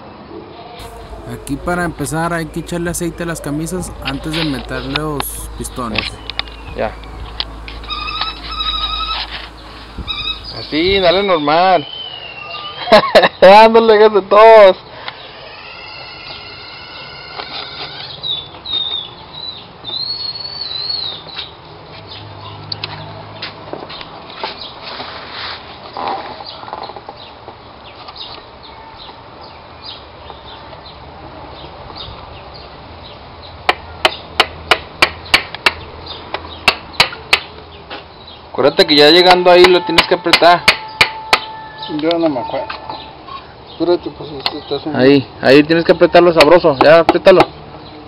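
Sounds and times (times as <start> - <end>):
high multi-note tone: 0.8 - 11.7
bird chirping in whistled notes: 6.2 - 12.8.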